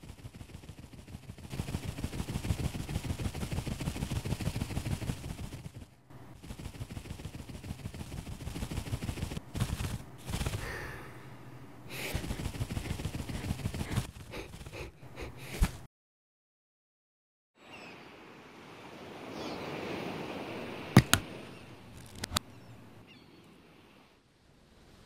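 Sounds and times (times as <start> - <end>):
cartoon bee wings fluttering: 0.0 - 11.1, 11.9 - 15.8
drawn-out breathy hiss: 10.4 - 15.6.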